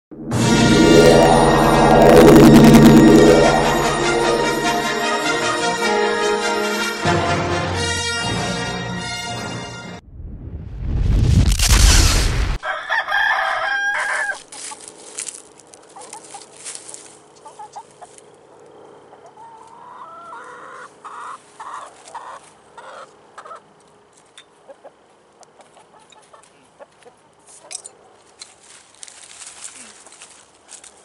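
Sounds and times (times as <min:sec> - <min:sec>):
chicken calling and clucking: 0:12.6 - 0:14.9, 0:17.4 - 0:23.9, 0:24.6 - 0:27.8.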